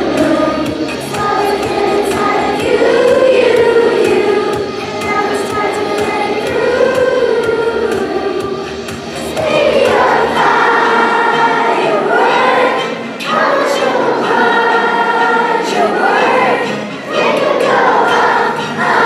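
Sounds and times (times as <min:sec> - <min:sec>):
children's choir singing: 0:00.0 - 0:19.0.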